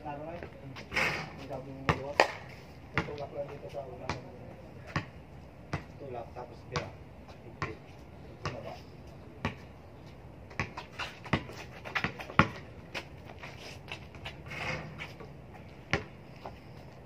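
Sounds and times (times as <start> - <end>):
basketball bouncing on hard court: 1.9 - 2.1, 3.0 - 3.2, 5.7 - 5.9, 10.6 - 12.6, 15.9 - 16.1.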